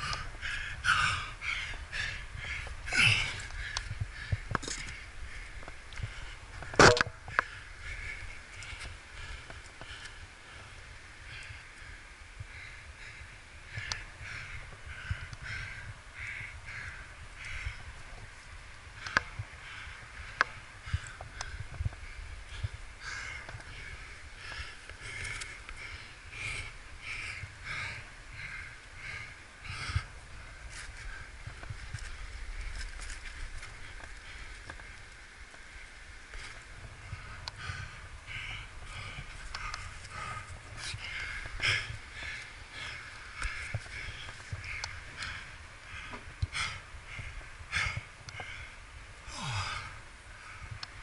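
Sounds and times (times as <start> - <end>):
person breathing hard: 0.0 - 6.6, 19.0 - 35.0, 35.7 - 50.9
heavy effortful breathing: 0.0 - 17.7, 36.3 - 50.8
steady low rumble: 0.0 - 51.0.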